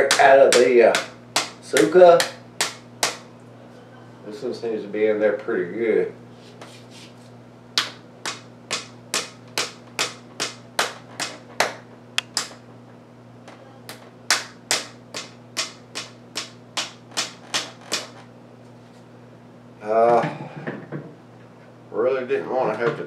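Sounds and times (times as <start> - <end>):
hand slapping wrist: 7.8 - 9.3, 10.0 - 12.6.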